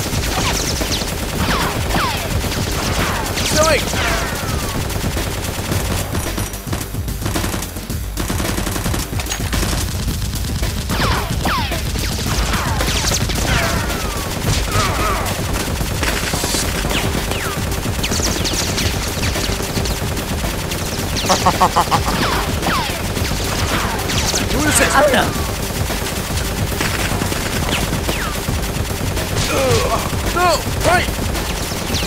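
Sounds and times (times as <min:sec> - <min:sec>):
automatic gunfire: 0:07.3 - 0:32.0.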